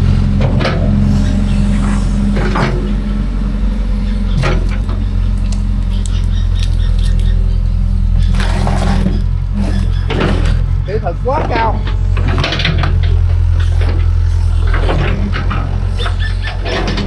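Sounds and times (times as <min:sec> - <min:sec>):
excavator diesel engine running: 0:00.0 - 0:17.0.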